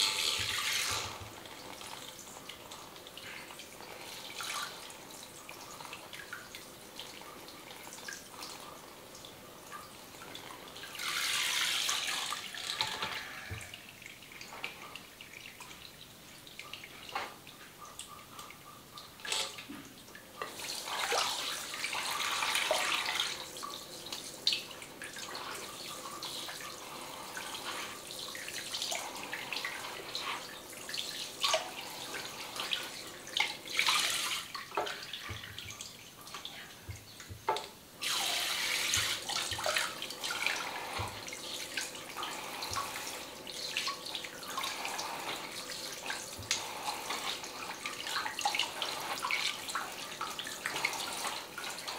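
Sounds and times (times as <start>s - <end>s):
shower head spraying water: 0.0s - 1.2s.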